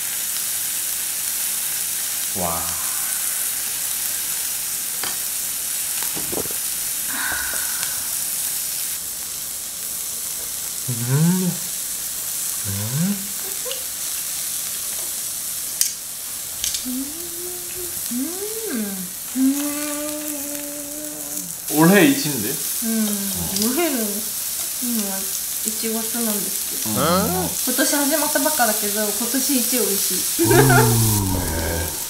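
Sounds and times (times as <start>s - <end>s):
meat sizzling on grill: 0.0s - 32.0s
person humming mmm: 2.4s - 3.8s, 7.1s - 8.4s, 10.9s - 11.8s, 12.7s - 13.8s, 16.8s - 21.6s, 23.0s - 23.8s, 26.8s - 27.6s, 30.4s - 32.0s.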